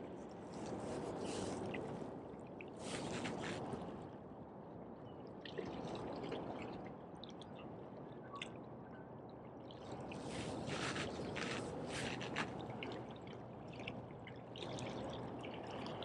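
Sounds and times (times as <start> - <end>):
waves lapping against rocks: 2.7 - 4.0, 9.9 - 16.0.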